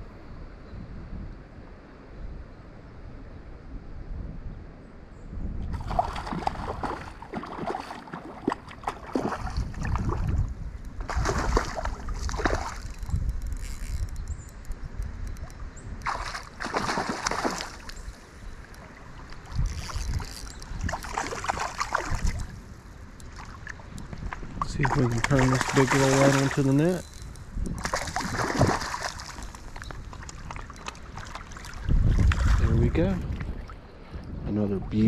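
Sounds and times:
water splashing and sloshing: 0:05.7 - 0:14.1, 0:15.4 - 0:35.0.

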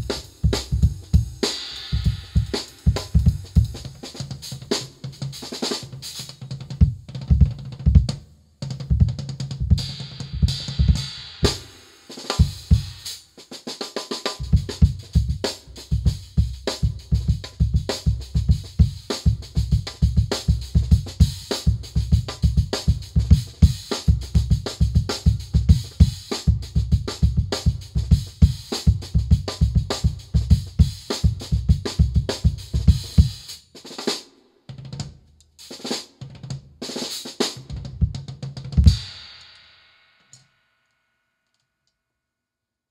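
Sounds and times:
cymbal wash: 0:00.0 - 0:03.8
drum kit groove: 0:00.0 - 0:40.4.

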